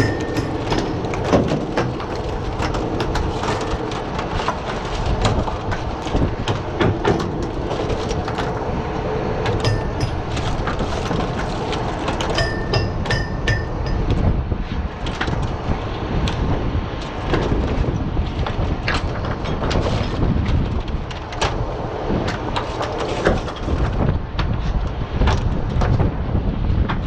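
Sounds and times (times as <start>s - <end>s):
oyster shells clattering on wood: 0.0s - 3.9s
boat engine rumble: 0.0s - 27.0s
wind: 0.0s - 27.0s.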